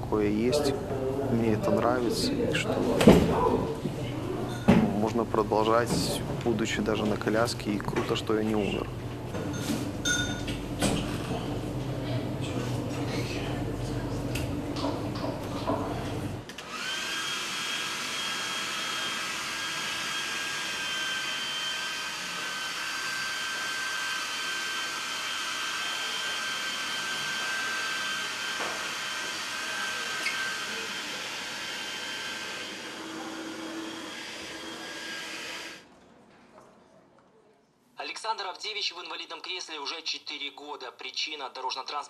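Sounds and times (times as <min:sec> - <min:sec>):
hair dryer whining: 0:16.4 - 0:35.8.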